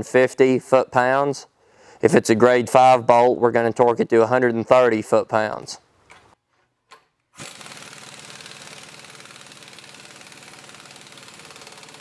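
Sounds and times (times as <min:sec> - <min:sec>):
impact wrench hammering: 0:07.4 - 0:12.0.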